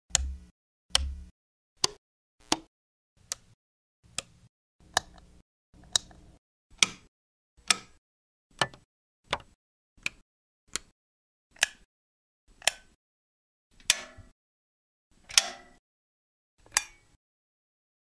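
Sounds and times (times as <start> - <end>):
power switches clicking: 0.1 - 1.2.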